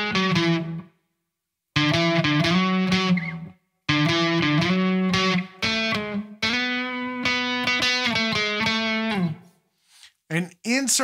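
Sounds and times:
electric guitar scale phrases: 0:00.0 - 0:01.0, 0:01.7 - 0:09.6.

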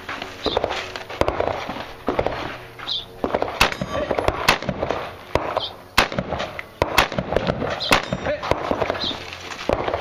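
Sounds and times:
rifle shots: 0:00.5 - 0:02.5, 0:03.2 - 0:10.0.

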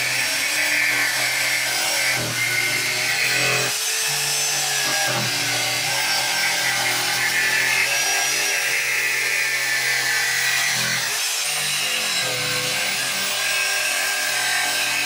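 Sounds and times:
electric jigsaw cutting sheet: 0:00.0 - 0:15.0.

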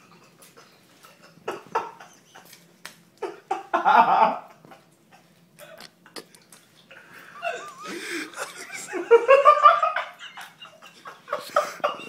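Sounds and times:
person laughing: 0:07.2 - 0:12.0.

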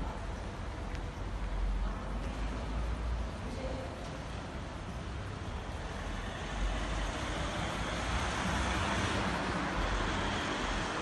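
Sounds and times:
car driving past: 0:05.8 - 0:11.0.

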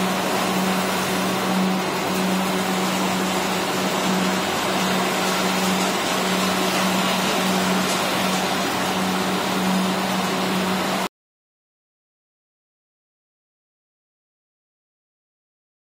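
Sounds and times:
drum whirring: 0:00.0 - 0:11.1
electric motor hum: 0:00.0 - 0:11.1.

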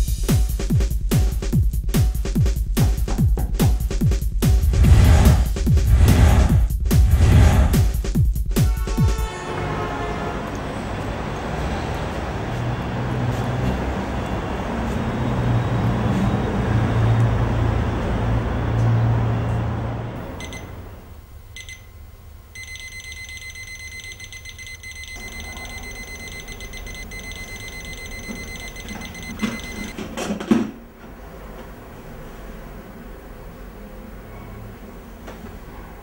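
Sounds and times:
loud low rumbling: 0:04.4 - 0:08.0
alarm clock switch-off thump: 0:20.4 - 0:20.7, 0:22.6 - 0:29.9
alarm clock beeping: 0:20.4 - 0:20.8, 0:21.5 - 0:22.0, 0:22.6 - 0:29.9.

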